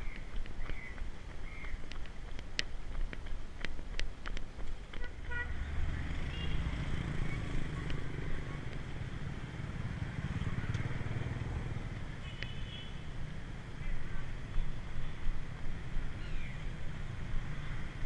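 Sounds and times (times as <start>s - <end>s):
motorbike and car engines passing: 5.0s - 18.0s.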